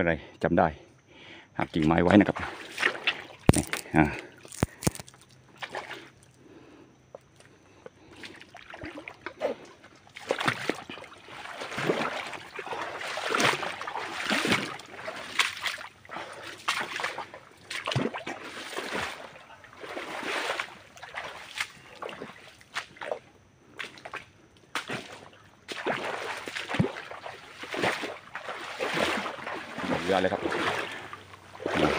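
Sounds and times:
shallow water splashing: 1.8 - 6.3, 8.0 - 23.2, 24.9 - 31.9.

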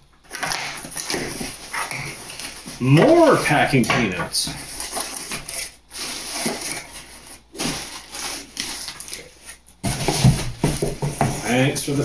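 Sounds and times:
packing peanuts rustling and crunching: 0.0 - 12.0
thump in cardboard box: 9.8 - 11.4.

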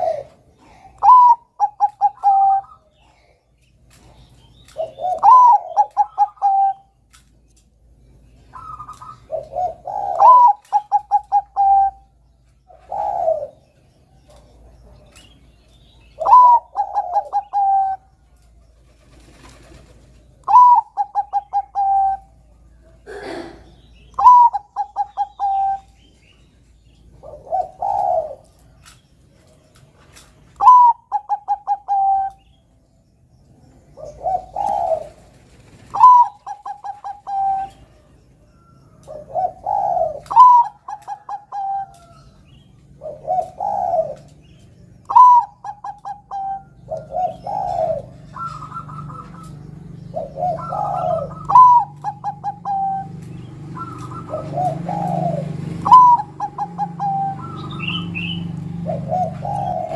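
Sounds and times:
dove cooing: 0.0 - 7.2, 8.5 - 28.9, 30.6 - 32.6, 33.8 - 59.9.

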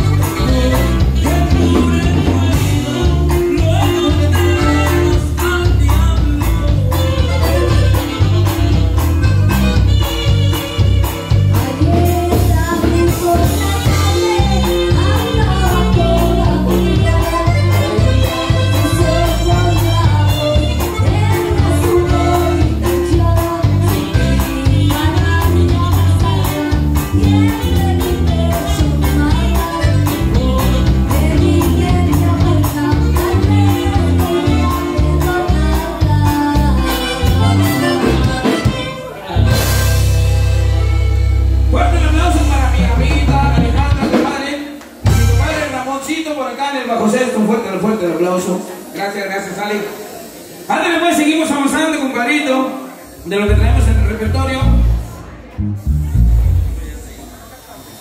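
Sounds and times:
saxophone: 0.0 - 41.8
button accordion: 0.0 - 44.1
person singing melody: 0.0 - 44.2
guitar strumming: 0.0 - 45.8, 53.5 - 57.2
steady drum beat: 0.0 - 45.8
walking bass notes: 0.0 - 45.9, 53.3 - 57.2
band playing dance tune: 0.0 - 52.2, 52.9 - 58.0.

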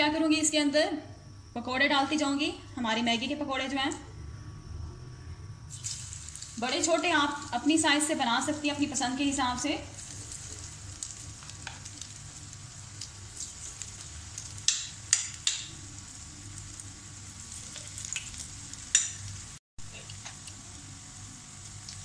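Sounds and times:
batter sizzling in hot oil: 5.7 - 22.0.

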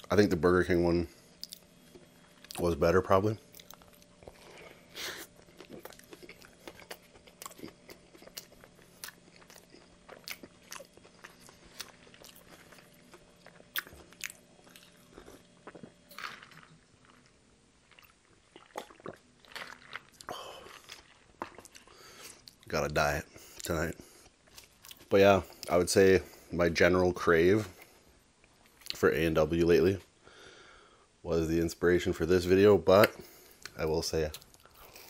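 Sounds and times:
faint steady hum: 0.0 - 35.0
chewing with crunches: 1.2 - 2.8, 3.4 - 26.5.

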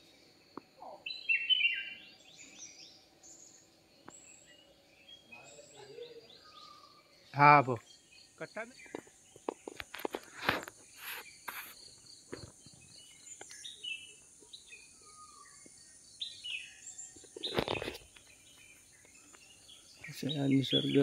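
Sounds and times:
birds chirping: 0.0 - 21.0
high insect drone: 0.0 - 21.0
rustles and scuffs: 8.9 - 11.8.

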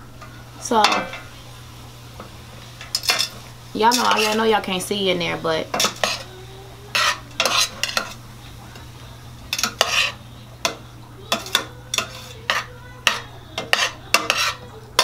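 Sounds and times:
spoon scraping steel pot: 3.9 - 4.4, 5.8 - 6.3, 6.9 - 8.2, 9.5 - 10.2, 11.3 - 14.7.

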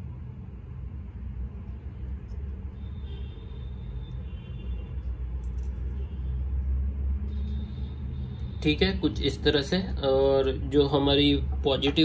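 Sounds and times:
low rumble and hum: 0.0 - 11.9.

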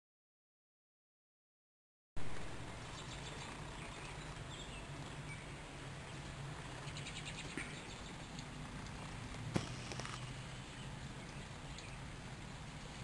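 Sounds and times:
light rain hiss: 2.2 - 13.0
bird chirps: 2.8 - 8.4, 9.6 - 12.1
bird trill: 2.8 - 8.4.

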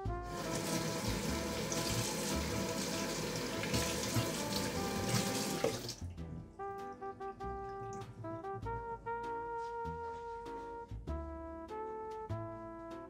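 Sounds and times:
hands rinsed under water: 0.3 - 6.1
tap running into steel sink: 0.5 - 6.0.

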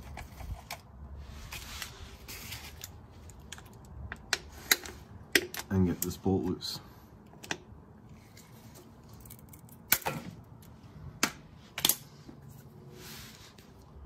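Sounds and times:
soft rustle: 1.2 - 3.5, 12.1 - 14.0.

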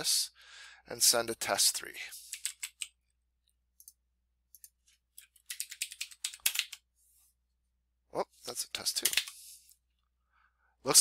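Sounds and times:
keyboard typing: 2.3 - 3.0, 3.8 - 6.8, 8.8 - 9.4.

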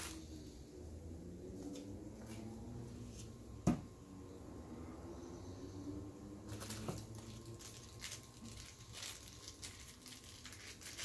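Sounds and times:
plastic bag crinkling: 6.5 - 11.0.

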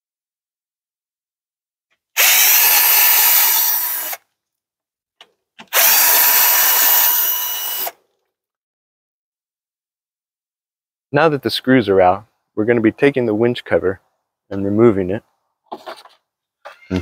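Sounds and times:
cordless screw gun whirring: 2.2 - 4.2, 5.6 - 8.0.

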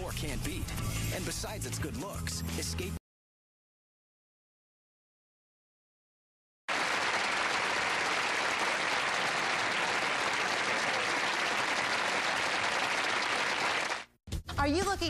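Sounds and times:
studio audience applause: 6.7 - 14.2.

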